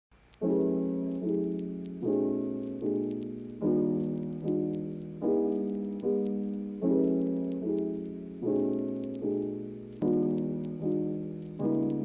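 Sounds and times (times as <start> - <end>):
slow piano chords: 0.4 - 12.0.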